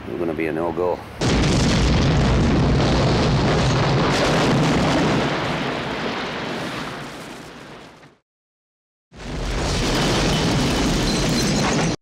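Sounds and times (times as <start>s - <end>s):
building collapsing deep rumble: 1.2s - 6.6s.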